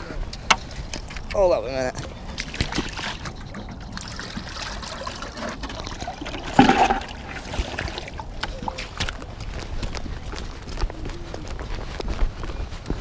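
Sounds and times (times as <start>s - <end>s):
footsteps: 6.6s - 13.0s.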